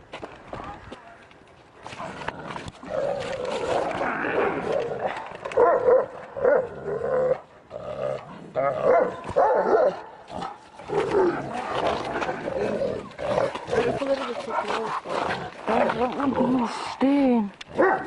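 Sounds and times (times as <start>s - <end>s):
dog growling: 2.0s - 5.6s, 6.4s - 9.4s, 10.3s - 17.0s
dog barking: 5.6s - 6.6s, 8.9s - 10.1s, 17.8s - 18.0s.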